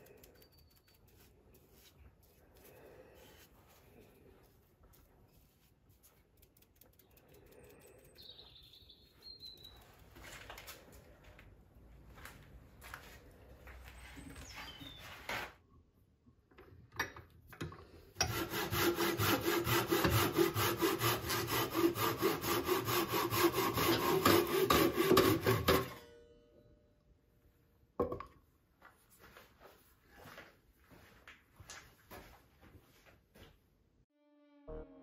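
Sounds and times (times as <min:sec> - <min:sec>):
hand saw cutting log: 0:18.2 - 0:26.0.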